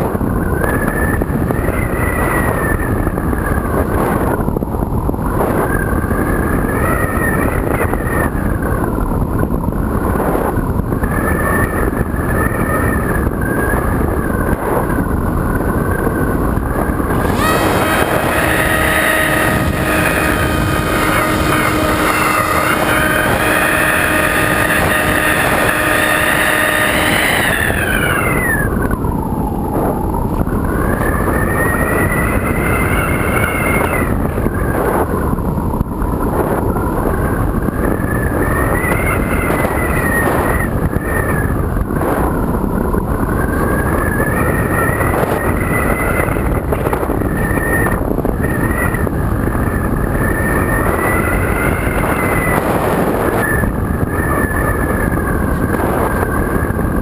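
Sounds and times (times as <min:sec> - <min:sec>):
wind on microphone: 0:00.0 - 0:57.0
electric motor propeller whine: 0:11.0 - 0:42.5, 0:43.1 - 0:57.0.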